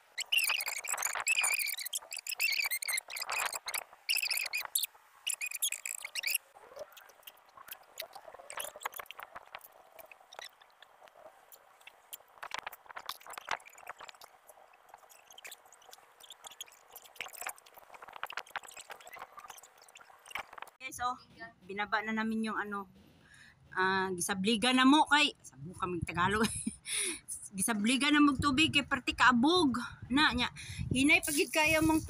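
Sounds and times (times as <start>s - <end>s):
high squeaky chirping: 0.0s - 21.4s.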